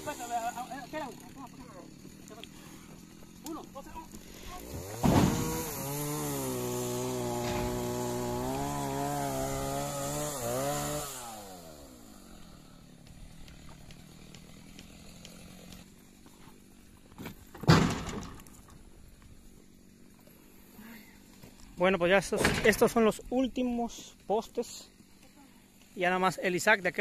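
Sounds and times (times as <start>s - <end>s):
chainsaw revving: 0.0s - 16.7s.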